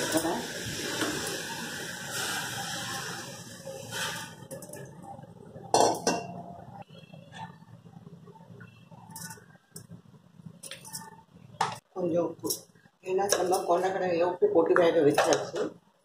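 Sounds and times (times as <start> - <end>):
utensils clinking on metal pot: 5.7 - 6.5, 9.1 - 9.9, 10.6 - 11.2.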